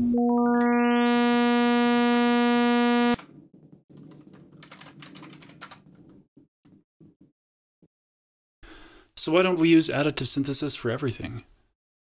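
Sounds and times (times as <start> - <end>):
buzzy synth tone: 0.0 - 3.2
typing on computer keyboard: 4.6 - 5.9.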